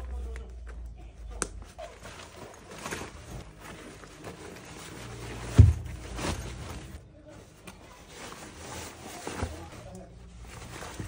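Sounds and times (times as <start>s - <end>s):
fabric bag rustling: 1.6s - 11.0s
dull thump: 5.4s - 6.4s.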